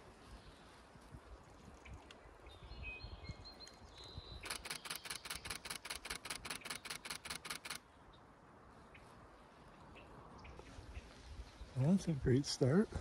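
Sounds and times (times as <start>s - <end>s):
camera shutter burst: 4.4s - 7.8s.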